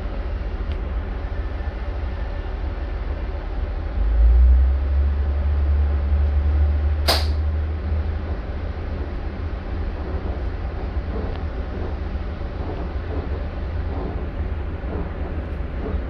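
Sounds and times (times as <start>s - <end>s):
railcar engine and running rumble: 0.0s - 16.0s
sharp clunk: 7.0s - 7.4s.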